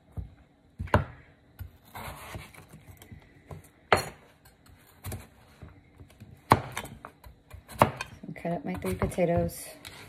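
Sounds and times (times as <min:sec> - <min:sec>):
knife chopping on wooden board: 0:00.1 - 0:02.7, 0:05.0 - 0:08.1.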